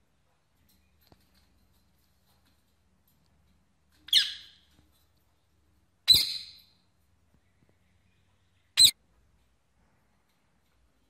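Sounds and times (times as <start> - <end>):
parrot squeaking: 4.1 - 4.6, 6.1 - 6.7, 8.8 - 9.0.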